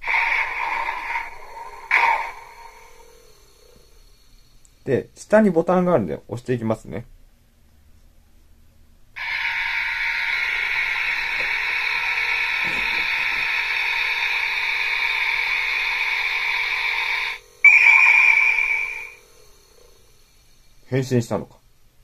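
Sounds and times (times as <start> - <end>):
toy electronic whoosh: 0.0 - 3.8, 9.2 - 19.2
high-pitched electronic burst: 9.2 - 19.4.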